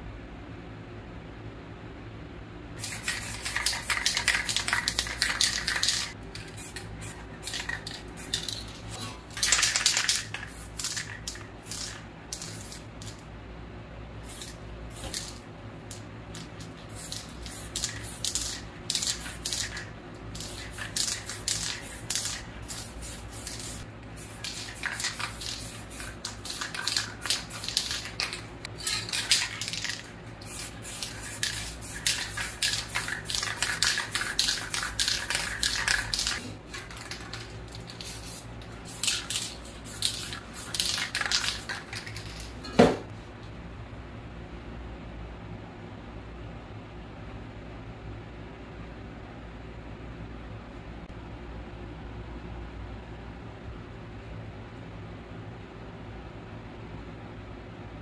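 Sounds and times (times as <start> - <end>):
spray paint cans hissing: 2.8 - 13.2, 14.2 - 42.6.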